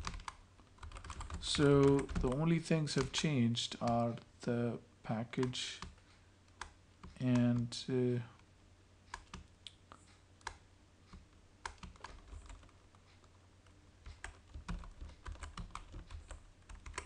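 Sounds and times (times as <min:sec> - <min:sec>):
typing on keyboard: 0:00.0 - 0:02.4, 0:10.4 - 0:12.8, 0:14.0 - 0:17.0.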